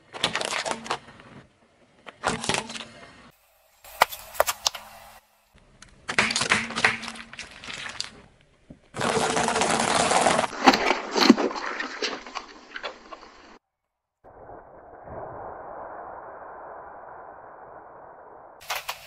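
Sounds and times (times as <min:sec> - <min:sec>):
steady hiss: 0:03.1 - 0:05.6
objects crushed under car tyre: 0:06.1 - 0:13.6.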